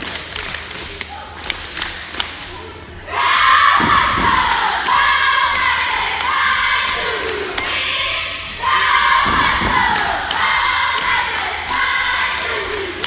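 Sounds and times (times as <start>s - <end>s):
girls shouting a chant: 3.1s - 13.0s.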